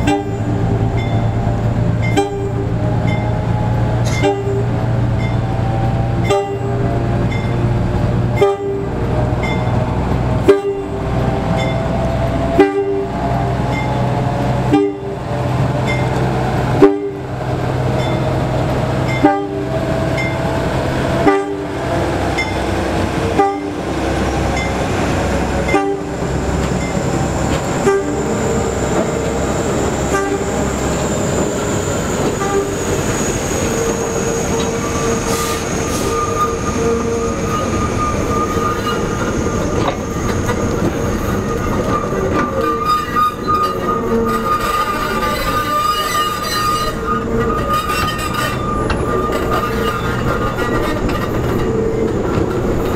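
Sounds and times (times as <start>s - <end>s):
diesel locomotive drone: 0.0s - 52.9s
wheels clanking over rail joints: 0.0s - 52.9s
high-pitched wheel squeal: 26.1s - 52.1s.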